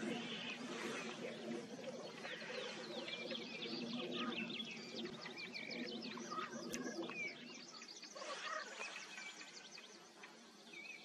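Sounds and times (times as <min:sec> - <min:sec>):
grouse bubbling coo: 0:00.0 - 0:07.4
songbirds chirping: 0:00.0 - 0:11.0.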